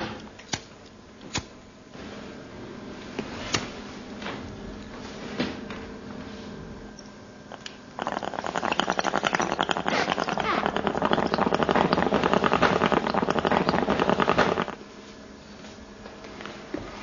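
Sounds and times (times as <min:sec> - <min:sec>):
water pipe bubbling: 0:07.5 - 0:14.8.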